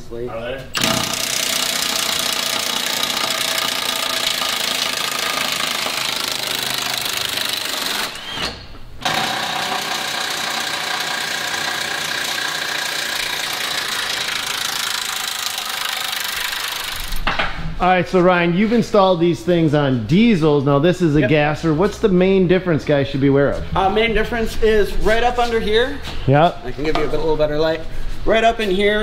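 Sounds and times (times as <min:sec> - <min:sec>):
impact wrench hammering on bolts: 0:00.8 - 0:08.2, 0:09.0 - 0:17.4.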